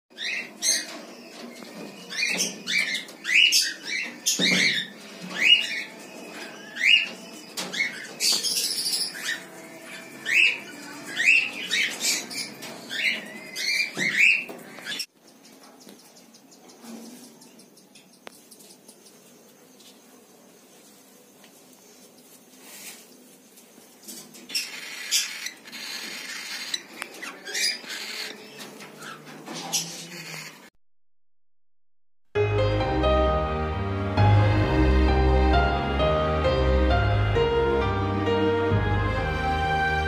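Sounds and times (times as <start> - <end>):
cockatiels chirping: 0.2 - 15.1, 24.4 - 30.7.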